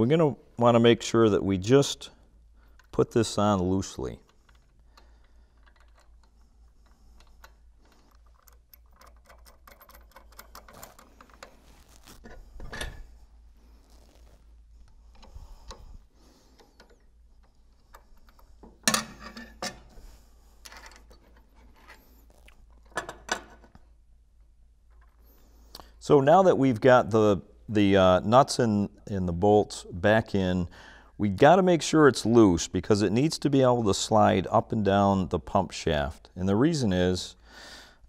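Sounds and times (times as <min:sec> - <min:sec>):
metallic clicks of nuts threaded: 0:02.6 - 0:03.4, 0:04.0 - 0:11.6.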